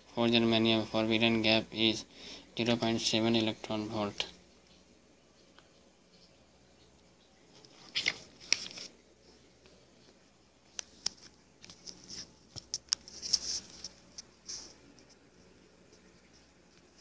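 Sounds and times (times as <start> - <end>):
scratchy rustles: 10.9 - 17.0.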